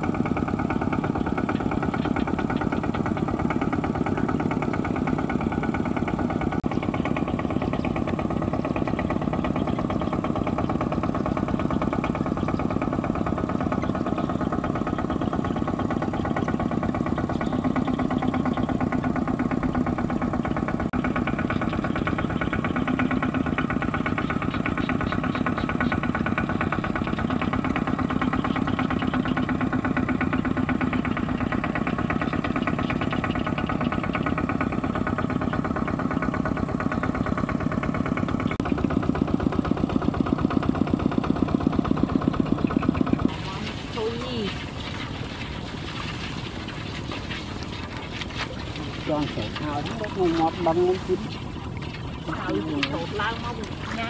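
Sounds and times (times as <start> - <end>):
diesel engine running under load: 0.0 - 54.0
wheels driving through water: 0.0 - 54.0.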